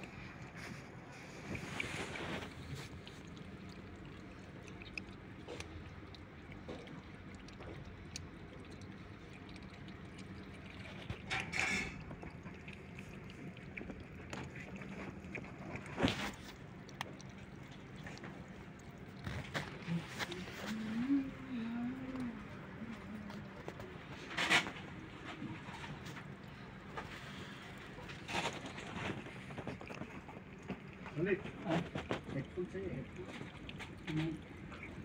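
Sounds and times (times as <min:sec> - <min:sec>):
kittens chewing and lapping: 0:00.0 - 0:35.0
steady low hum: 0:00.0 - 0:35.0.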